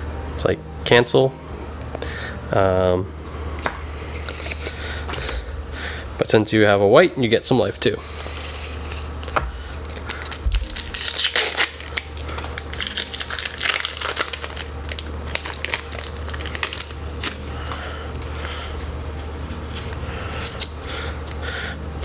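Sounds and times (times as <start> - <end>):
foil wrapper crinkling: 7.6 - 20.0.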